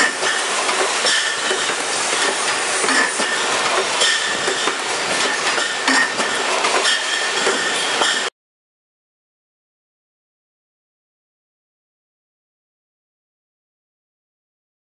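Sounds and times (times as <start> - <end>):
clatter of machinery and bottles: 0.0 - 8.3.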